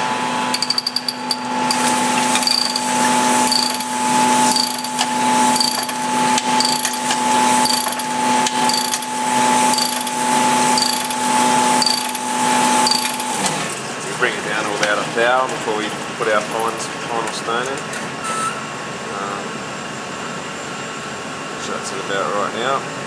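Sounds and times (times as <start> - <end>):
honing machine motor hum: 0.2 - 13.7.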